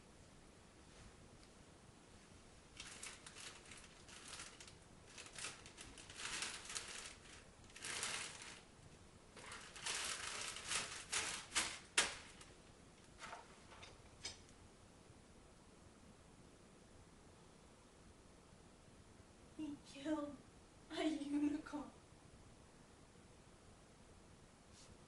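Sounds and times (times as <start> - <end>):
packaging rustling and crinkling: 2.7 - 8.7, 9.4 - 12.6.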